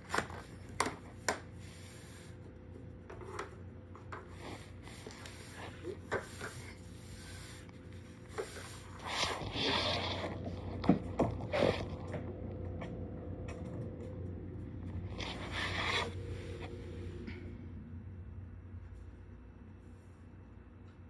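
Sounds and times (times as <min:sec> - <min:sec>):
faint steady hum: 0:00.0 - 0:21.0
hand scraping across floor: 0:04.2 - 0:12.3, 0:14.9 - 0:17.4
rubbing noise: 0:08.3 - 0:10.8, 0:15.1 - 0:16.8.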